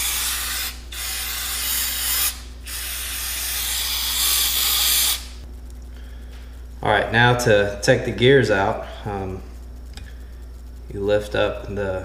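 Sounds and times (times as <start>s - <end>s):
aerosol can spraying: 0.0s - 5.4s.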